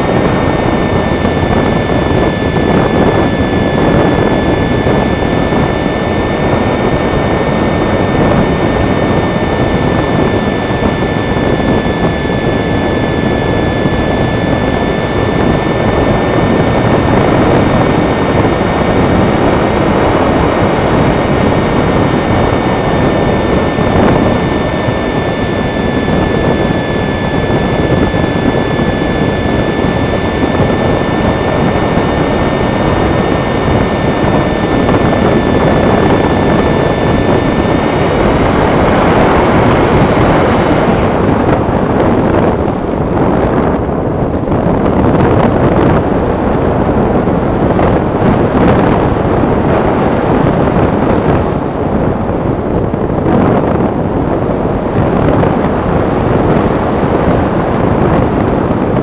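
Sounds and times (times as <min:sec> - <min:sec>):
electric motor whining: 0:00.0 - 0:45.8
wind noise on microphone: 0:00.0 - 0:59.0.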